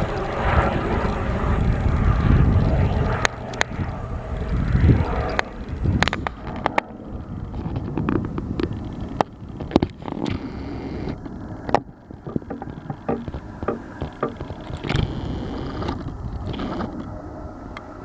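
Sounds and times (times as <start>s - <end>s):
helicopter flying overhead: 0.0s - 18.0s
sharp clicks and knocks: 11.1s - 17.1s.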